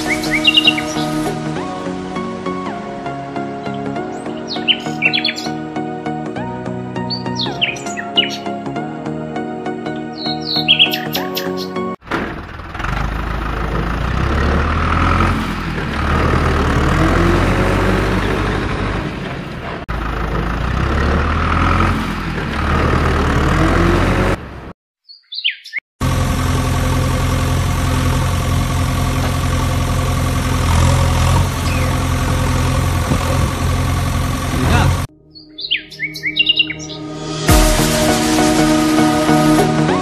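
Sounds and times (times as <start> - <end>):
heavy vehicle engine running: 0.0 - 6.2, 12.0 - 24.7, 26.0 - 35.1, 37.2 - 40.0.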